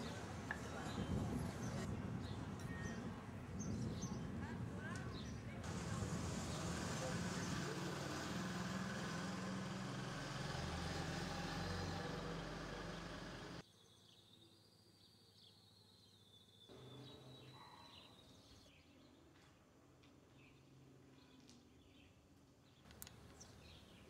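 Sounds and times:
vehicle engine running: 5.6 - 13.6
faint high bird chirping: 13.6 - 19.0.

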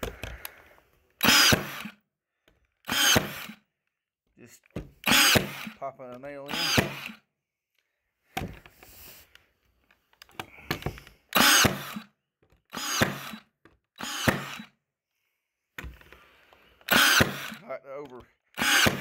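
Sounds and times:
nail gun shots into wood: 1.2 - 2.0, 2.9 - 3.6, 5.0 - 5.8, 6.5 - 7.2, 11.3 - 12.1, 12.7 - 14.7, 16.9 - 17.6, 18.6 - 19.0.

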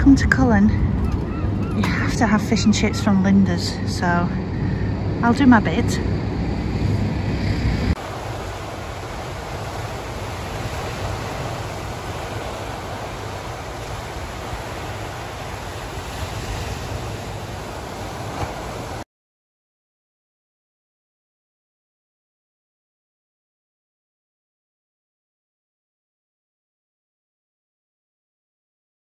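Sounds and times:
loud low rumble: 0.0 - 8.2
surf breaking on rocks: 8.0 - 19.0.

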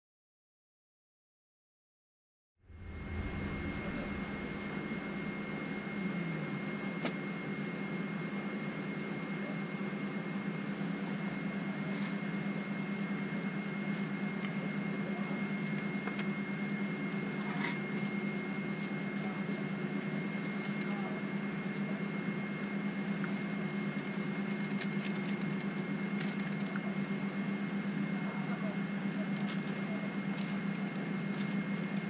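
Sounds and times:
high whine: 2.6 - 9.5
air conditioning hum: 2.7 - 8.8.

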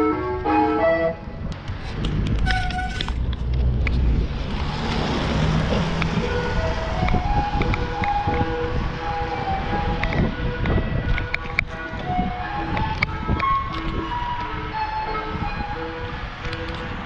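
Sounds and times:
wind on microphone: 0.4 - 17.0
ice cream van chime tune: 12.2 - 17.0.

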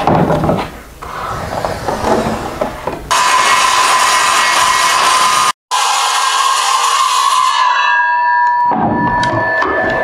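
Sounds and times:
circular saw cutting: 1.1 - 8.0.

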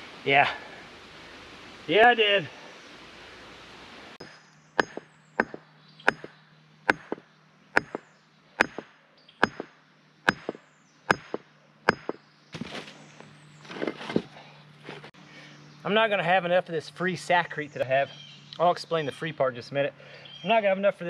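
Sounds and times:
hammer striking concrete: 4.2 - 6.3, 6.9 - 7.2, 7.8 - 12.2.

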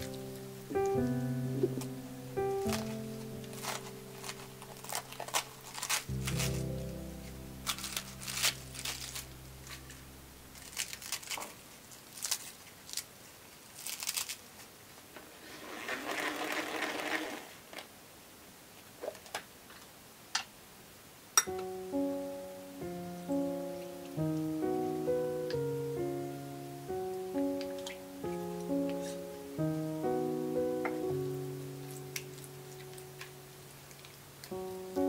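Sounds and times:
lettuce leaves being torn: 0.0 - 2.0, 2.6 - 14.8
salad spinner whirring: 15.2 - 17.6.

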